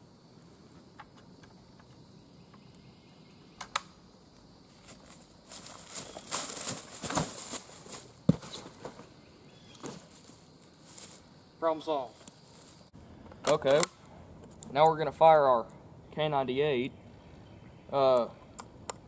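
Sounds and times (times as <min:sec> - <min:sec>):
sharp clicks: 0:03.6 - 0:04.0, 0:13.3 - 0:14.7
footsteps running through dry leaves: 0:04.9 - 0:09.0.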